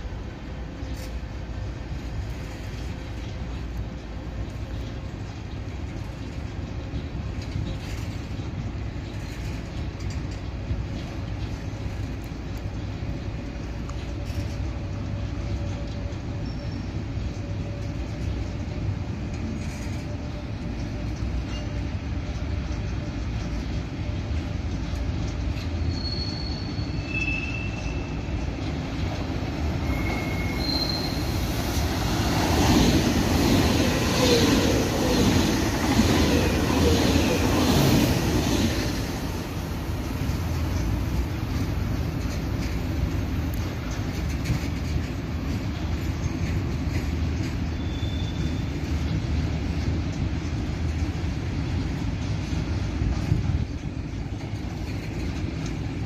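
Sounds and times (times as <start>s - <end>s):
freight train rumbling past: 0.0s - 56.0s
high-speed train rushing past: 0.0s - 56.0s
high wheel squeals: 25.7s - 28.4s, 29.7s - 31.5s, 47.7s - 48.8s.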